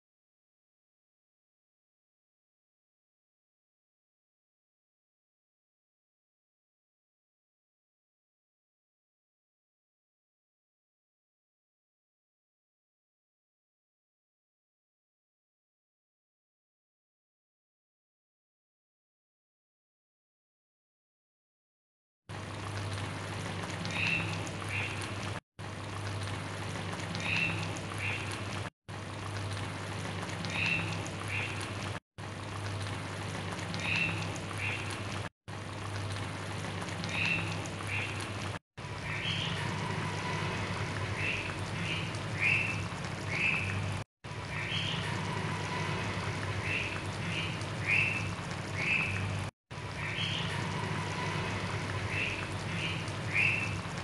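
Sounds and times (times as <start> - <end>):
broth bubbling: 22.3 - 54.0
low steady hum: 43.9 - 53.3.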